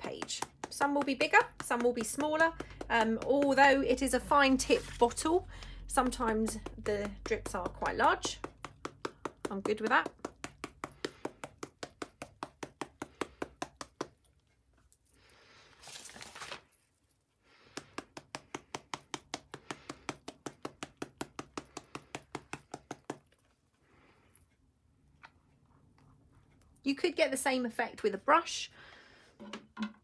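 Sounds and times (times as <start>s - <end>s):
rapid tapping of ink bottle: 0.0s - 14.3s, 17.7s - 23.4s
paper rustling: 4.5s - 5.2s, 15.5s - 17.1s.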